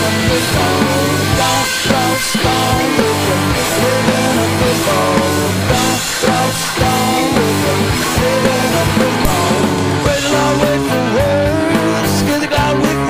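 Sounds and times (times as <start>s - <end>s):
bass guitar: 0.0s - 13.0s
electric guitar lines: 0.0s - 13.0s
steady drum beat: 0.0s - 13.0s.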